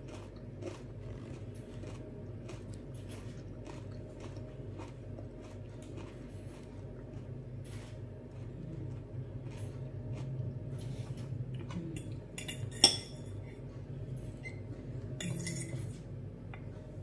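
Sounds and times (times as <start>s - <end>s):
cutlery clinking on glass plates: 12.4s - 13.4s.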